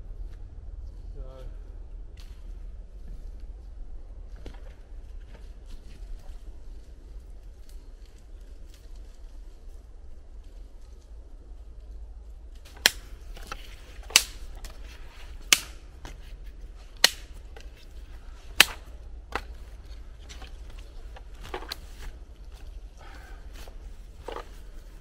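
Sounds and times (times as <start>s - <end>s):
wood being struck: 12.7s - 22.7s.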